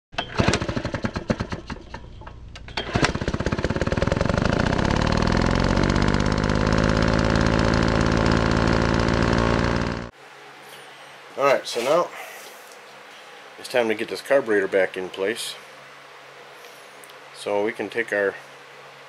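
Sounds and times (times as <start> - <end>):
small engine popping and running: 0.2 - 10.1.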